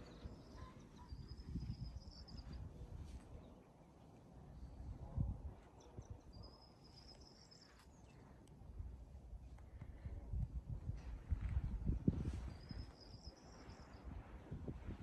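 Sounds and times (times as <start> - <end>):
wind buffeting microphone: 0.0 - 3.4, 8.7 - 15.0.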